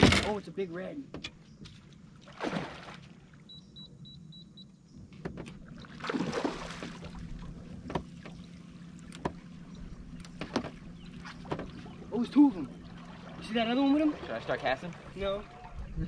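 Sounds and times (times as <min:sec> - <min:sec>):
water splashing: 0:01.7 - 0:03.5, 0:05.4 - 0:16.0
light knocks: 0:07.8 - 0:08.4, 0:09.1 - 0:09.4, 0:10.2 - 0:11.9.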